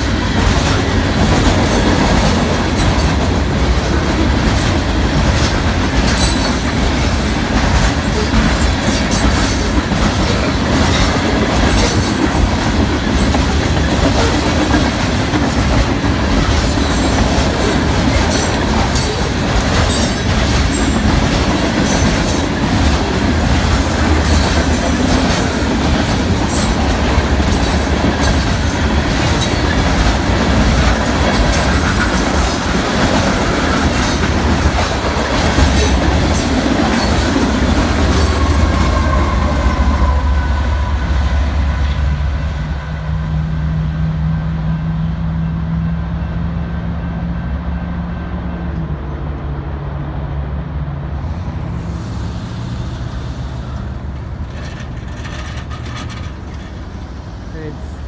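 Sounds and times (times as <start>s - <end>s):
train wheels rumbling on rail: 0.0s - 58.0s
sharp clicks and clanks: 54.2s - 56.9s.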